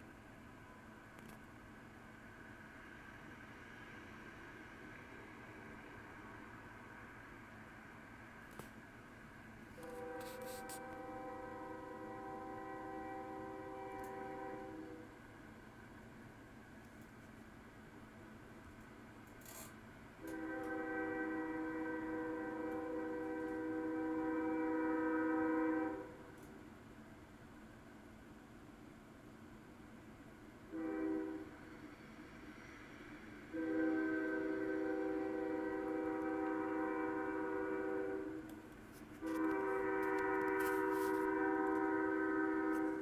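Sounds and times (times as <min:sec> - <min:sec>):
locomotive air horn chord: 0:09.7 - 0:15.2, 0:20.2 - 0:26.5, 0:30.7 - 0:31.6, 0:33.5 - 0:43.0.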